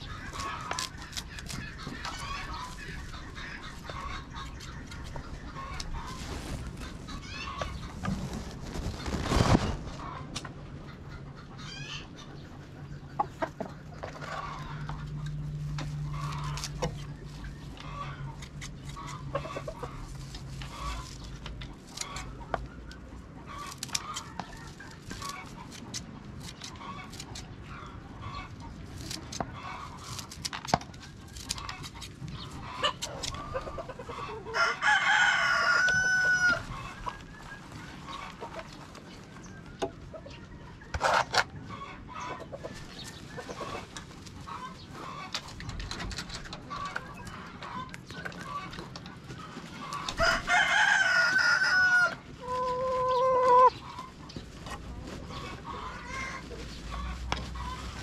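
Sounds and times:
chickens clucking: 0.0 - 58.0
rooster crowing: 34.5 - 36.7, 50.2 - 53.5.

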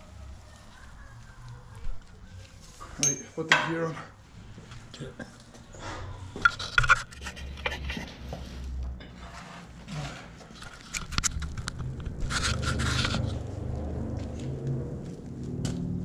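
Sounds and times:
scraping and rubbing: 6.3 - 16.0.

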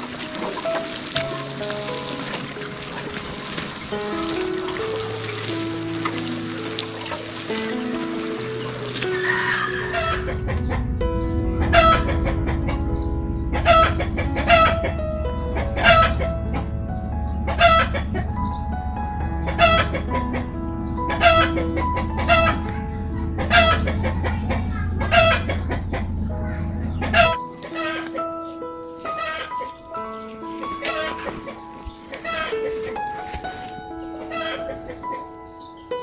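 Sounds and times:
low steady drone: 0.0 - 28.6
background music held notes: 0.0 - 36.0
chickens clucking: 19.4 - 28.3, 29.0 - 35.7.

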